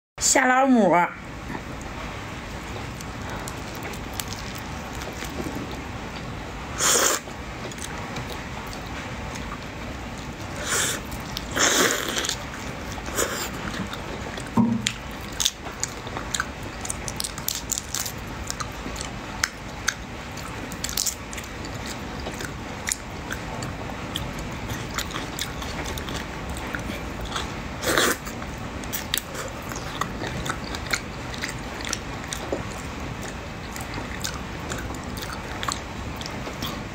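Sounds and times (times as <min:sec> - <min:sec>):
person biting and chewing: 0:02.9 - 0:05.8, 0:10.6 - 0:36.8.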